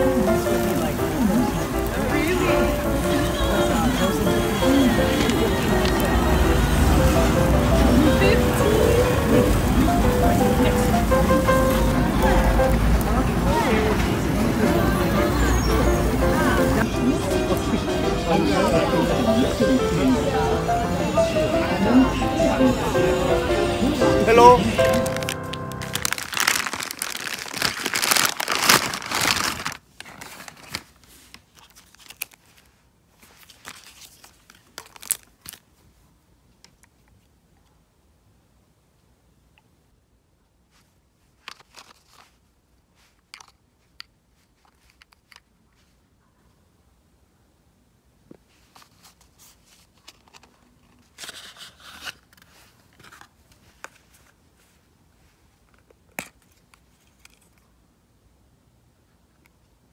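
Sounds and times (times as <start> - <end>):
sachets crinkling: 0.0 - 13.1, 24.4 - 35.7, 41.4 - 42.4
shopping bag rustling: 0.0 - 16.8, 24.2 - 35.6.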